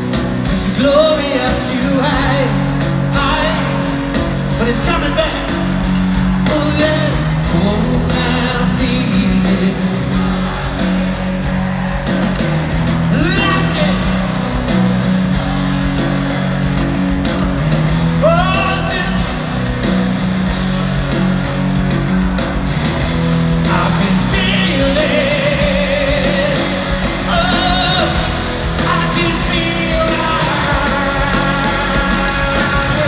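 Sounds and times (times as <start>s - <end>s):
live rock band playing: 0.0s - 33.0s
wordless singing: 23.6s - 33.0s.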